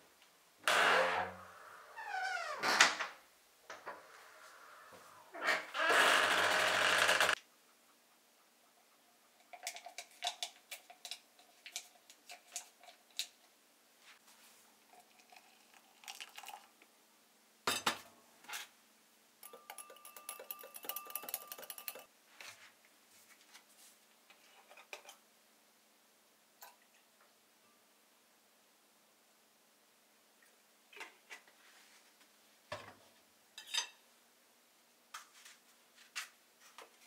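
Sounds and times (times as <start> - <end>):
dishes clinking and knocking: 17.7 - 18.1, 19.4 - 22.1
dishes rattling clatter: 19.4 - 22.1.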